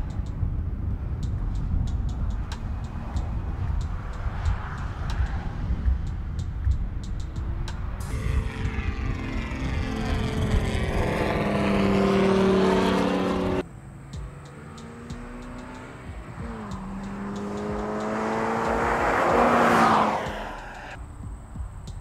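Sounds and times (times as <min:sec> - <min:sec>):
car passing by: 0:01.6 - 0:21.0
car engine accelerating hard: 0:07.4 - 0:21.0.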